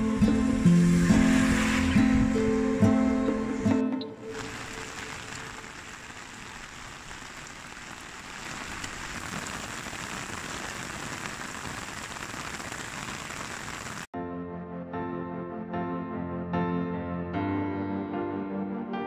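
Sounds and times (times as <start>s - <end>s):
soft music: 0.0s - 5.1s, 14.2s - 19.0s
rain falling on road and trees: 4.2s - 14.1s.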